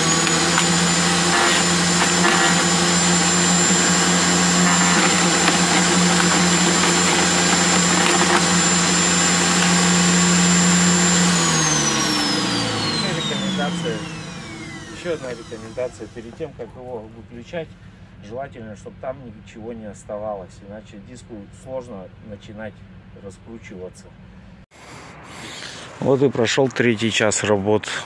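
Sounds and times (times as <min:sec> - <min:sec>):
motor winding down: 0:00.0 - 0:16.7
garden shredder whining: 0:00.0 - 0:17.0.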